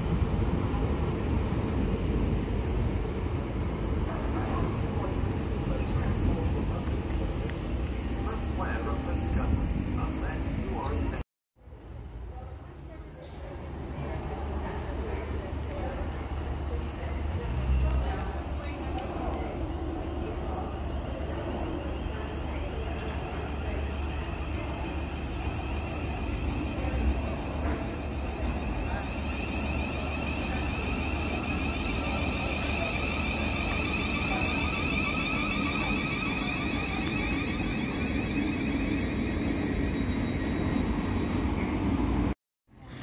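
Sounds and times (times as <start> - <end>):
train wheels on rails: 0.0 - 11.2, 13.2 - 42.4
electric traction motor whine: 23.0 - 42.4.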